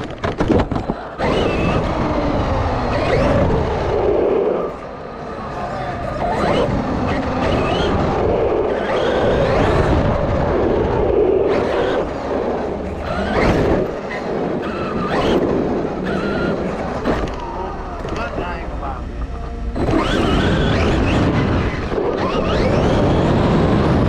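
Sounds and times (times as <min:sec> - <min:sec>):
tyres rumbling on concrete: 0:00.0 - 0:05.2
electric motor whine: 0:01.1 - 0:24.0.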